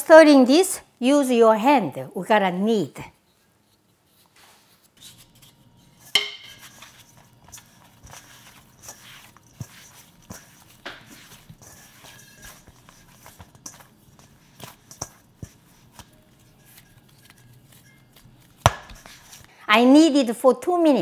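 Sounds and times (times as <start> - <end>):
dough kneaded by hand: 3.6 - 19.6
metal bowl ringing: 6.0 - 6.9, 11.2 - 19.4.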